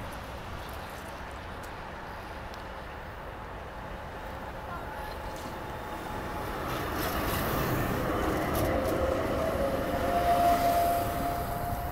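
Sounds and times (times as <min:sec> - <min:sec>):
light clicks from running gear: 0:00.1 - 0:02.8
steel wheels rumbling on rails: 0:03.4 - 0:11.9
tram electric drive whining: 0:03.9 - 0:11.9.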